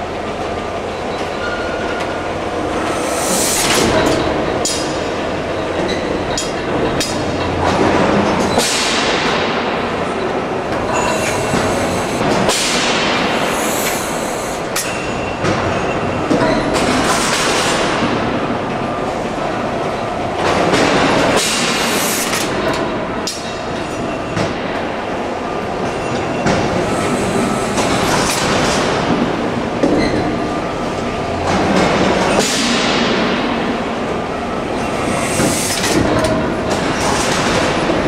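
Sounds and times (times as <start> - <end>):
steam rushing: 2.7 - 4.0, 10.9 - 14.8.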